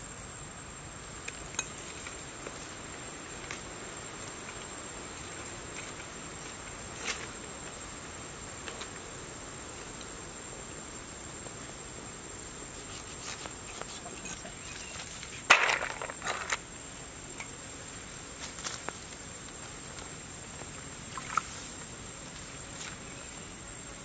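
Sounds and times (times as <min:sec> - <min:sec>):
high insect whine: 0:00.0 - 0:24.0.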